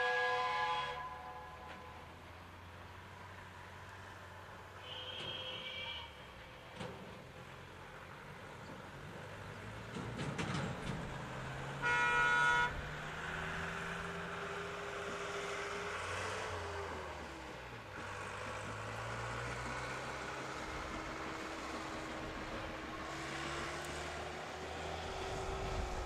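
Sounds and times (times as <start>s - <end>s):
steam locomotive whistle: 0.0s - 2.0s, 4.8s - 6.2s, 11.7s - 12.8s
locomotive clanks: 9.8s - 11.6s.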